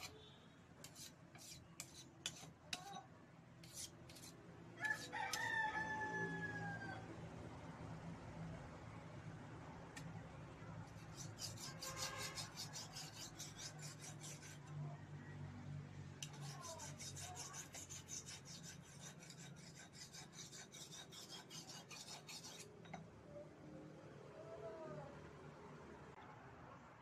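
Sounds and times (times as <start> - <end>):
knife rasping on sharpening stone: 0.8 - 3.0, 3.6 - 5.2, 10.9 - 14.8, 16.2 - 23.0.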